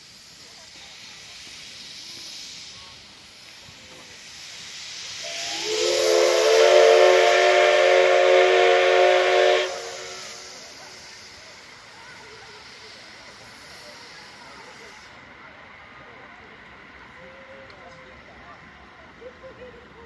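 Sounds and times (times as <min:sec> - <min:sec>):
faint steam hiss: 0:00.0 - 0:20.0
steam locomotive whistle: 0:05.1 - 0:10.8.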